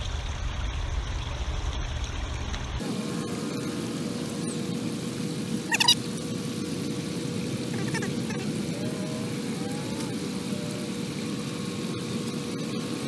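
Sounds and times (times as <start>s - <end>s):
faint hum: 0.0s - 13.0s
low outdoor rumble: 0.0s - 13.0s
squeaky chirping call: 5.7s - 6.0s, 7.8s - 10.1s.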